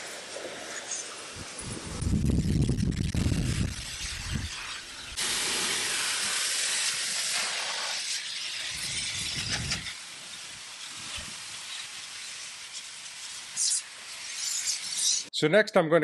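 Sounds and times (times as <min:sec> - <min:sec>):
vacuum blower air hissing: 0:03.2 - 0:11.6.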